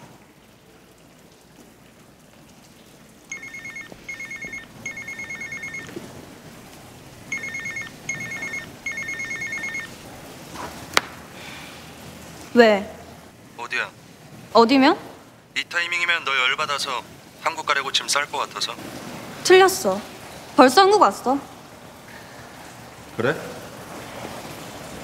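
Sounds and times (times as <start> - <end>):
mobile phone ringtone trilling: 3.3 - 5.9, 7.3 - 10.0.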